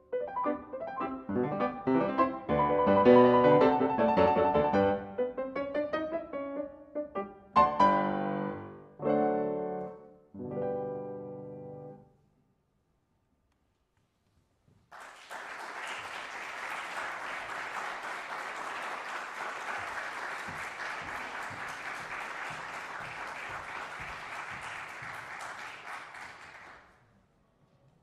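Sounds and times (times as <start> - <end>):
audience applauding: 14.9 - 27.0.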